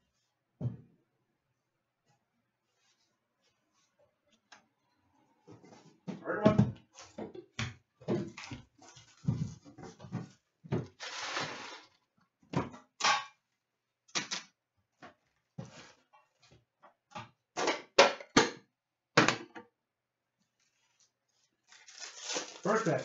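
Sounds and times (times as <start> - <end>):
plastic wrap crinkling: 20.5 - 23.0.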